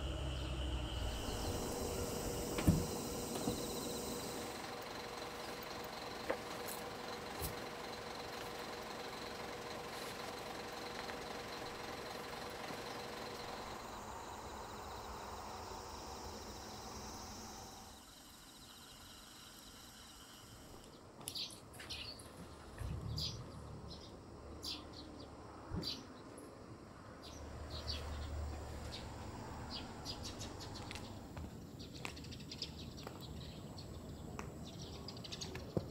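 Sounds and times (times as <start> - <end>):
low even hum: 0.0 - 7.2
insects trilling: 0.0 - 21.0.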